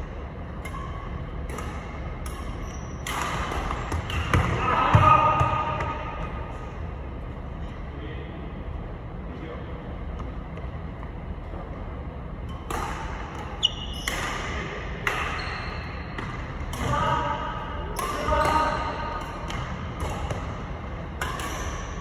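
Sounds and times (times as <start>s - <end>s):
rackets hitting shuttlecocks: 0.6s - 4.6s, 12.6s - 15.4s, 17.9s - 22.0s.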